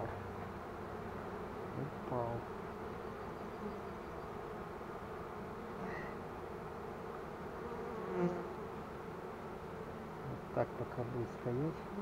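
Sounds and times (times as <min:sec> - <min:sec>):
bees buzzing: 0:00.3 - 0:12.0.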